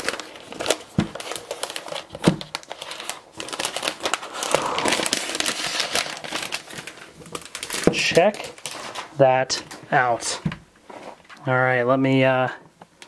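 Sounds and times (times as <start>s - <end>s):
plastic wrap crinkling: 0.0s - 9.8s.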